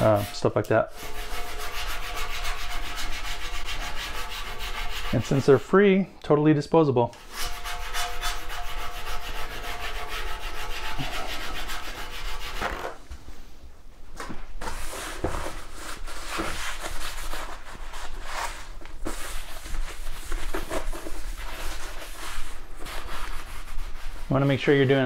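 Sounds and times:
paper towel wiping table: 0.0 - 5.7, 7.3 - 13.5, 14.6 - 25.0
plastic scraper scraping metal table: 7.2 - 13.0.

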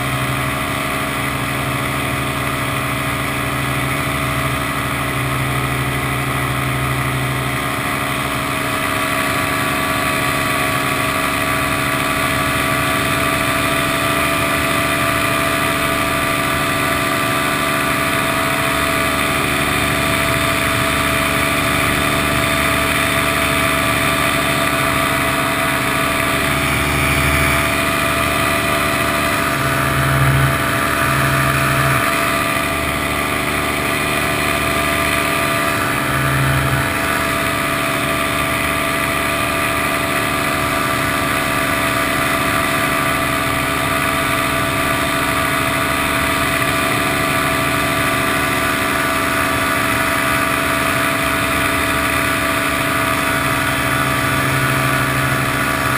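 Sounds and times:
paramotor engine and propeller: 0.0 - 55.9.

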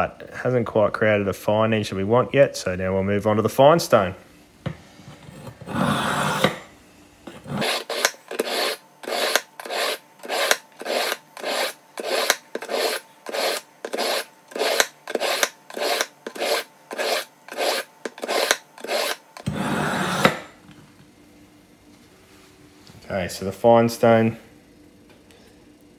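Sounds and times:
knife grinding on sharpener: 5.2 - 6.7, 7.3 - 20.5
knife rasp on sharpener: 5.6 - 6.6, 7.3 - 20.4.

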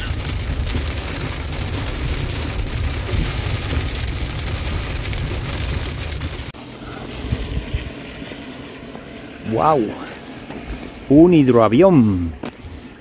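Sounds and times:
rain and hail on windscreen: 0.0 - 6.6
engine and tyre rumble: 0.0 - 13.0
light wind: 0.0 - 13.0.

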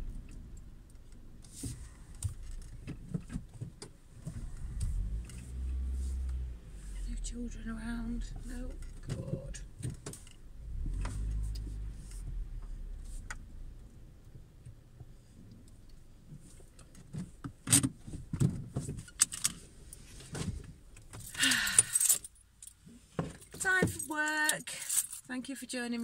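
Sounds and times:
car engine rumble: 0.0 - 25.9
car keys jangling: 19.0 - 20.1, 21.0 - 25.3.

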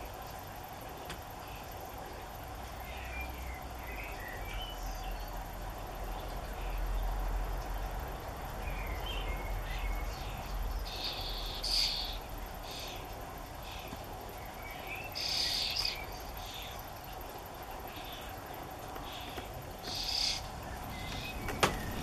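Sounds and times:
nestlings begging chirps: 8.6 - 22.0.

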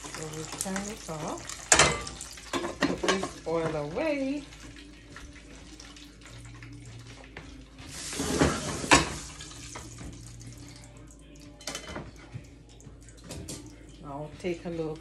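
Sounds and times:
pot rushing and clattering: 7.9 - 10.2.

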